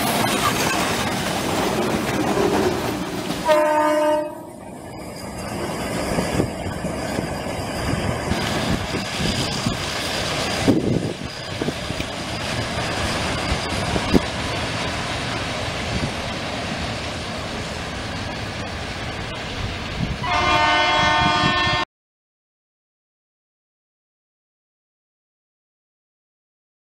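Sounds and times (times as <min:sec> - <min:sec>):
diesel locomotive running: 0:00.0 - 0:21.8
wheels rumbling on rails: 0:00.0 - 0:21.8
locomotive air horn: 0:03.4 - 0:04.6, 0:20.2 - 0:21.9.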